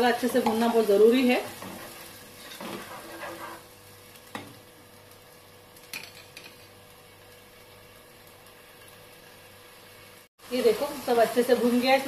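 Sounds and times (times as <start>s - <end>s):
faint sizzle: 0.0s - 12.0s
spoon stirring and scraping pot: 1.4s - 3.7s.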